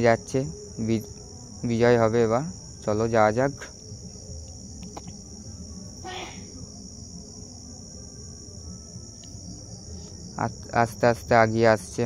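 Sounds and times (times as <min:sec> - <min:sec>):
crickets chirring: 0:00.0 - 0:12.0
low background hum: 0:00.0 - 0:12.0
person calling out: 0:06.0 - 0:06.5.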